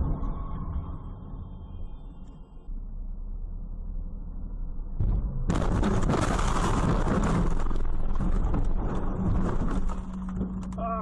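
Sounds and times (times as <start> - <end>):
car tyre and engine hum: 0.0 - 11.0
loud car crash: 5.0 - 10.4
crashing and clattering: 5.5 - 10.6.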